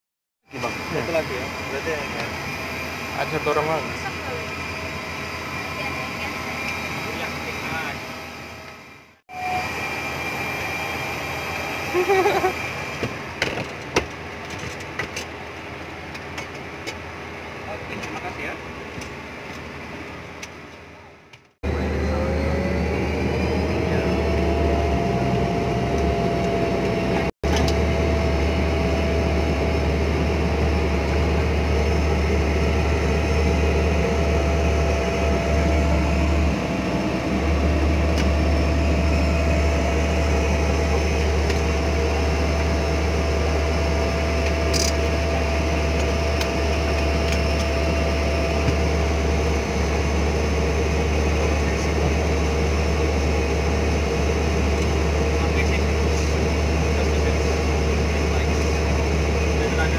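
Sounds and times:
turboprop engine drone with whine: 0.4s - 59.9s.

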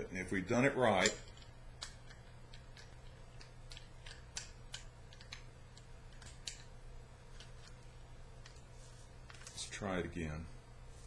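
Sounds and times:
low steady hum: 0.0s - 11.0s
small clicks and scrapes of steel: 1.0s - 6.7s.

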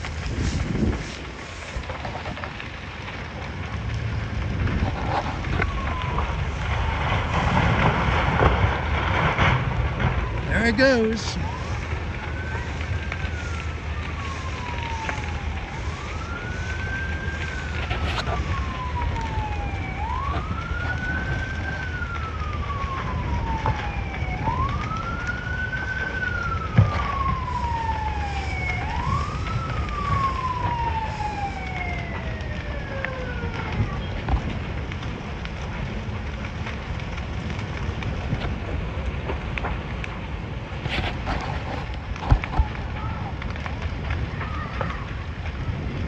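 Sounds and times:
emergency siren wailing: 0.0s - 46.0s
sharp crack: 0.0s - 46.0s.

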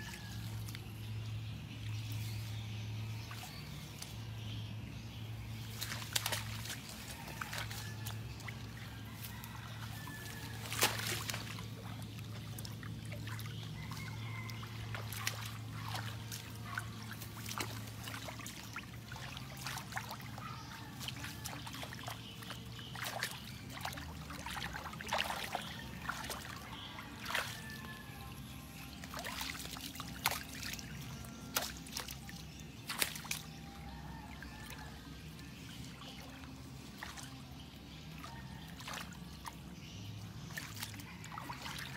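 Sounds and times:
water trickling: 5.2s - 41.9s
hands splashing in water: 5.7s - 8.8s, 9.8s - 27.9s, 28.9s - 33.6s.

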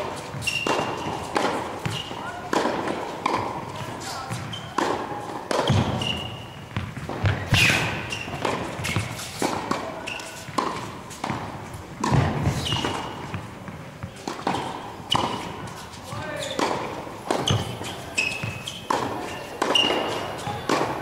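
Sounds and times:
footsteps on court: 0.0s - 21.0s
racket hitting tennis ball: 0.0s - 21.0s
tennis balls bouncing on court: 0.0s - 21.0s.

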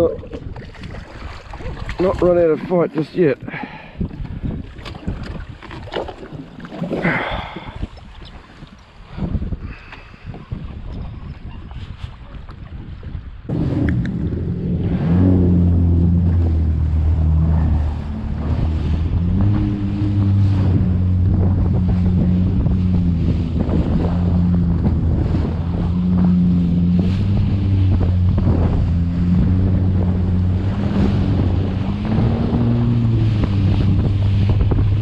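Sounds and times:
water rushing past hull: 0.0s - 9.7s, 11.7s - 35.0s
wind buffeting microphone: 0.0s - 35.0s
jet ski engine: 13.5s - 35.0s.

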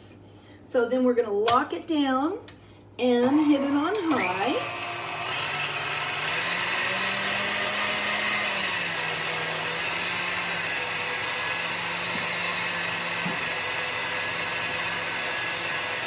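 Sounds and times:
stand mixer motor hum: 4.1s - 16.0s.

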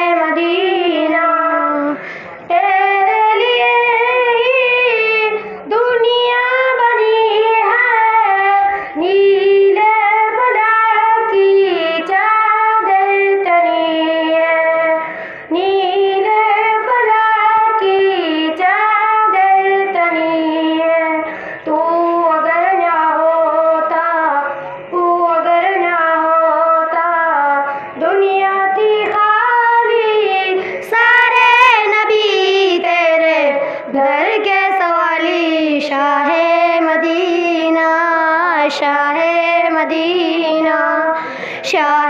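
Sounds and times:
girls singing through microphones: 0.0s - 42.0s.

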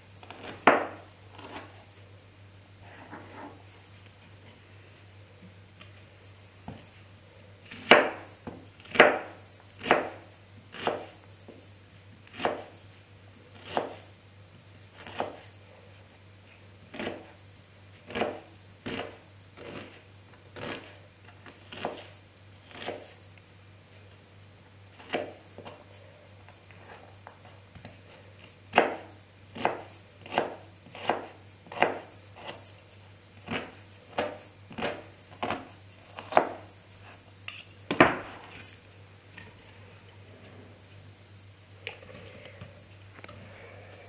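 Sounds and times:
knife chopping on cutting board: 7.7s - 8.3s, 8.9s - 11.1s, 12.3s - 12.7s, 33.5s - 36.6s.

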